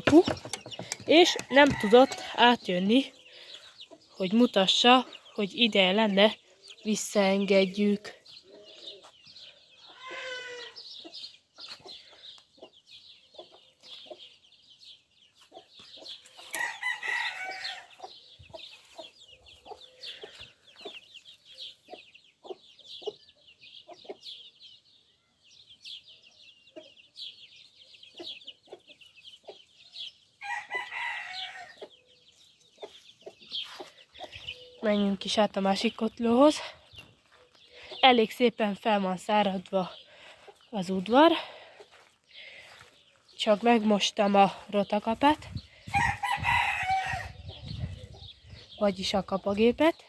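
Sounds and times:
hen clucking: 0.0s - 6.3s
drawn-out chicken calls: 0.0s - 14.5s, 15.3s - 24.5s, 26.7s - 35.2s, 39.9s - 48.8s
chicks peeping: 0.0s - 38.1s, 38.9s - 50.0s.

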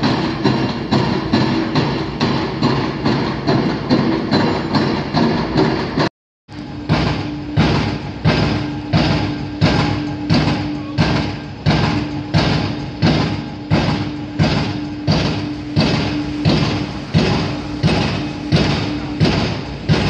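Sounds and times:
rig engine hum: 6.5s - 20.0s
pile hammer blows: 6.7s - 20.0s.

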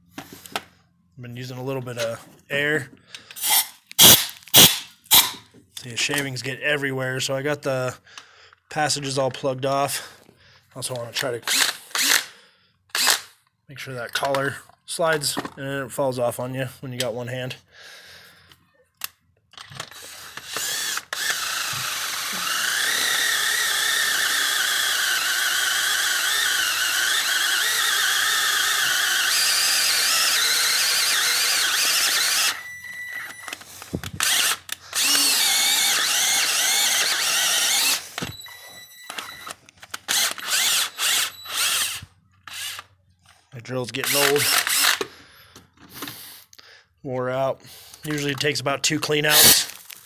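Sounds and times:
cordless drill whining under load: 3.1s - 5.5s, 11.2s - 13.4s, 19.6s - 43.0s, 44.0s - 46.4s, 49.3s - 49.9s.

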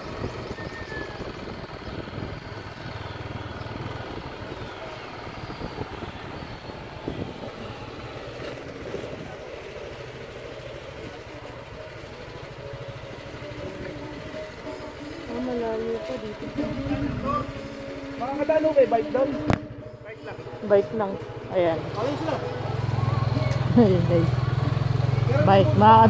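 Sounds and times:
wind noise: 0.0s - 2.8s, 3.8s - 9.5s
road noise: 0.0s - 26.0s
vehicle engine running: 0.0s - 26.0s.

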